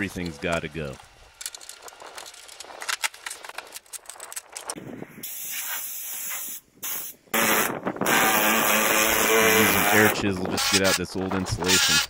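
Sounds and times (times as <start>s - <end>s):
trim crackling and clicking: 0.0s - 4.8s
pneumatic air chisel rattling: 1.4s - 11.0s.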